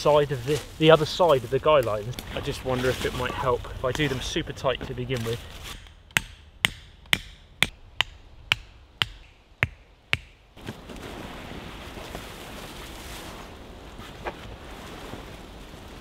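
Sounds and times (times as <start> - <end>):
tent peg hammered into ground: 5.6 - 10.5.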